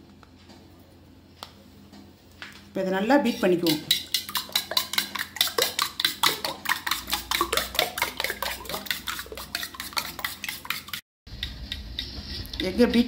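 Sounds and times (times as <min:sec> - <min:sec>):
fork beating eggs in bowl: 0:03.0 - 0:13.0.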